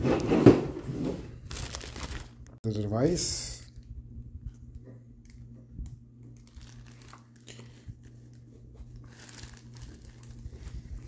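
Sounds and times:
low hum: 0.6s - 11.0s
plastic wrapping crinkling: 1.4s - 2.6s, 6.4s - 11.0s.

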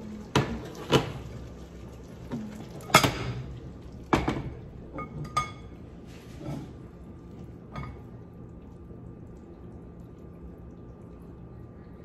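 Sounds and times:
steady low hum: 0.0s - 12.0s
soft scrape: 6.0s - 6.8s.

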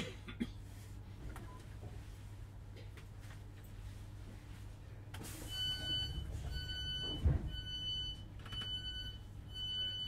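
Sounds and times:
door warning beeps: 5.4s - 10.0s.

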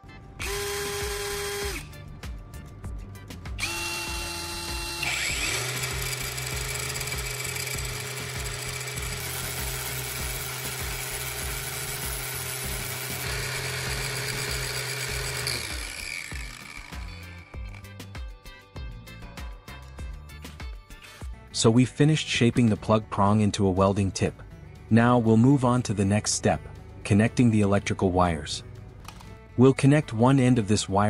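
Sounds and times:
cordless drill whirring: 0.4s - 1.9s, 3.6s - 17.9s.

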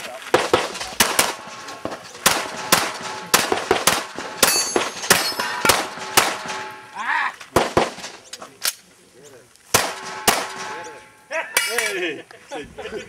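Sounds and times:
pistol shots: 0.3s - 6.9s, 7.5s - 8.2s, 9.7s - 11.0s
steel targets clanging: 0.4s - 8.5s, 9.8s - 12.1s.

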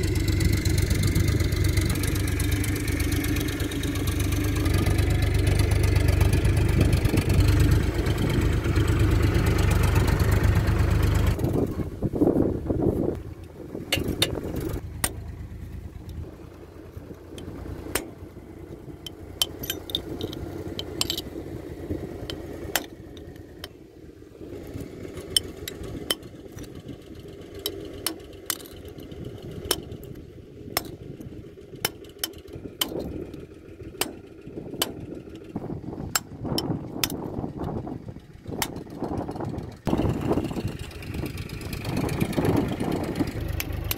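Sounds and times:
metal tool tapping on metal: 19.0s - 21.2s, 36.2s - 37.2s.

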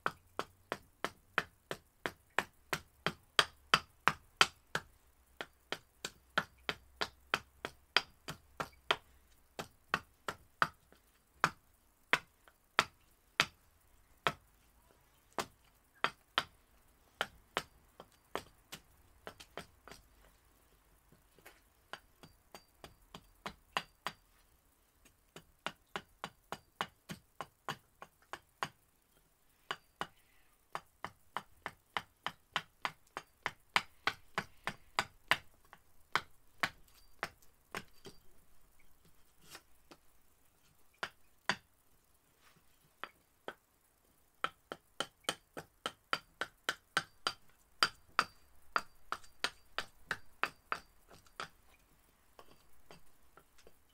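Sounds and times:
axe chopping wood: 0.1s - 9.0s, 44.4s - 51.5s.

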